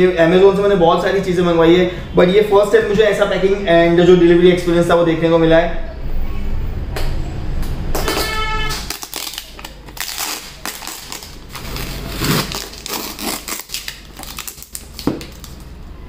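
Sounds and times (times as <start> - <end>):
cardboard and paper tearing: 8.8 - 15.6.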